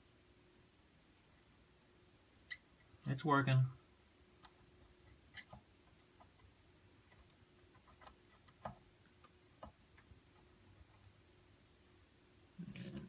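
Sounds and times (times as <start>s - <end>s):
faint desoldering ticks and clicks: 4.4s - 11.1s.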